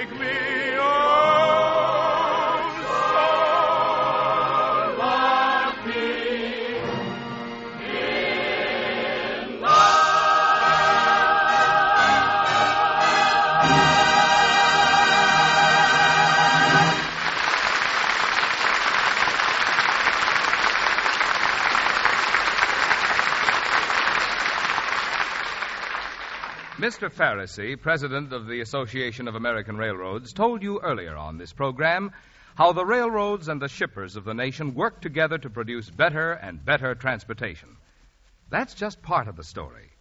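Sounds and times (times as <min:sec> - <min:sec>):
choir singing: 0:00.0 - 0:17.3
singers with orchestra: 0:00.0 - 0:17.4
singer and orchestra held note: 0:09.6 - 0:17.3
audience applauding: 0:16.0 - 0:27.0.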